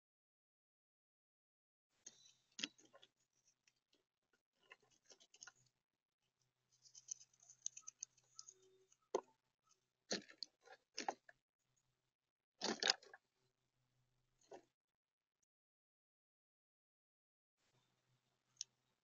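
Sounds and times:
squirrel gnawing nuts: 4.6 - 5.7, 6.7 - 9.3
crunching and clicking of shells: 6.8 - 9.3, 10.1 - 11.4.

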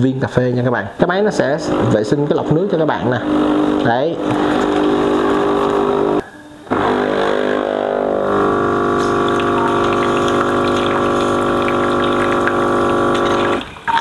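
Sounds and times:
coffee machine pump humming: 1.4 - 14.0
water running from spout: 3.2 - 6.2, 7.2 - 14.0.

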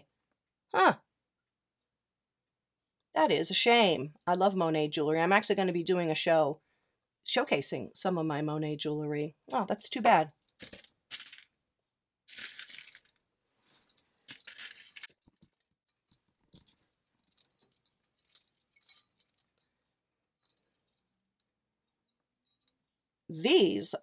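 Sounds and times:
metal jewelry clinking: 10.4 - 11.4, 12.3 - 22.9.

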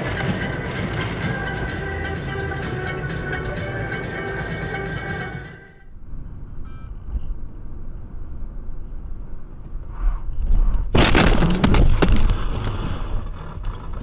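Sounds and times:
car driving rumble: 5.8 - 14.0
car collision crash: 10.9 - 13.4.

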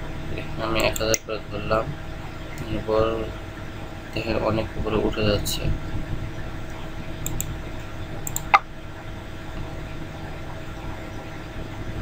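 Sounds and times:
steady low hum: 0.0 - 12.0
computer mouse clicks: 7.2 - 7.5, 8.2 - 8.6.

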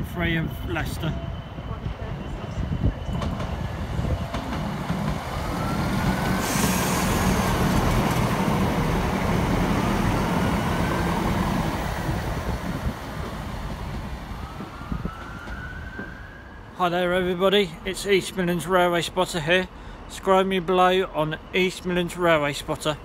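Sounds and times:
train engine hum: 0.0 - 23.0
hiss: 6.2 - 7.9.

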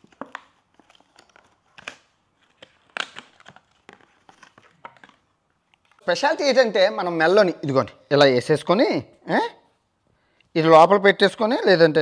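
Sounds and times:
cardboard packaging rustling: 0.0 - 6.1.

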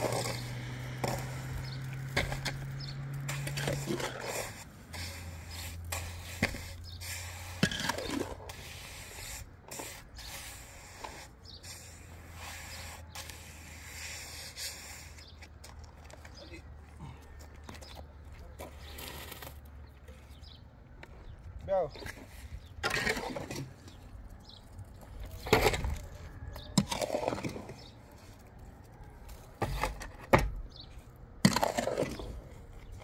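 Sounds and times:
irregular scraping: 0.0 - 33.0.

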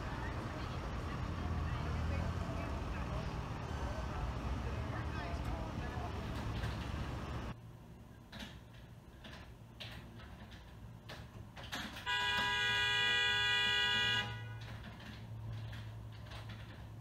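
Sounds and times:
car horn long blast: 12.0 - 14.7.

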